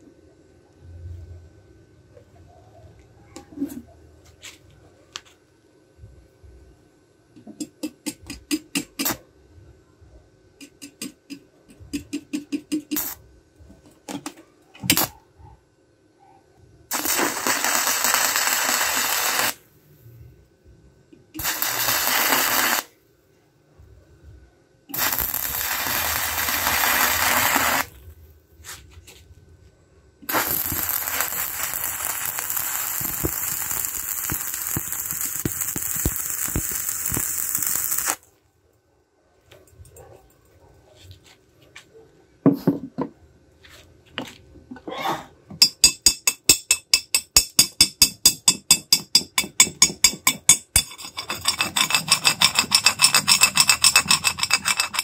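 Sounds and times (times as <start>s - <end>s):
welding arc sizzling: 12.0s - 13.2s, 14.9s - 15.1s, 16.9s - 19.7s, 21.4s - 22.9s, 24.9s - 28.1s, 30.2s - 38.3s, 50.5s - 55.0s
welding rod crackles and ticking: 12.0s - 13.2s, 16.9s - 19.6s, 21.4s - 22.9s, 24.9s - 28.0s, 30.3s - 38.3s.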